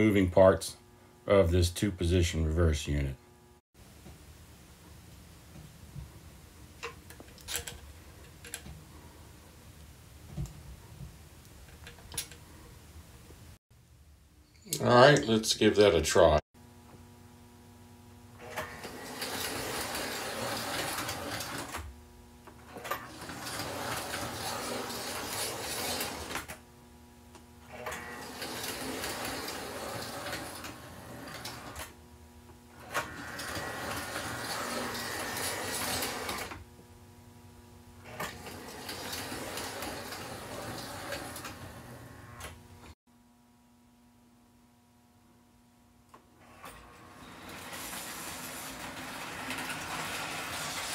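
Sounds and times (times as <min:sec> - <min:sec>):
steady hum: 0:00.0 - 0:19.0
toy train motor and gears running: 0:18.4 - 0:21.9, 0:22.7 - 0:26.6, 0:27.8 - 0:31.9, 0:32.8 - 0:36.6, 0:38.1 - 0:42.2, 0:46.6 - 0:50.9.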